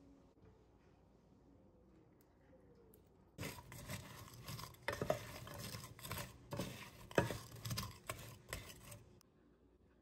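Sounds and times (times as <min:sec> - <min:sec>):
wooden spoon scraping in saucepan: 0:03.4 - 0:09.2.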